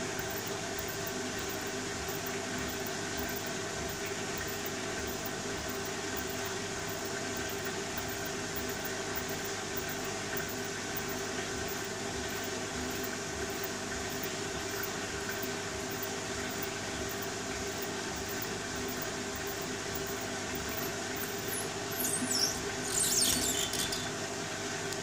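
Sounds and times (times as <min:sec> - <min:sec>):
washing machine motor hum: 0:00.0 - 0:25.0
high squeaks from tumbling load: 0:21.2 - 0:24.2.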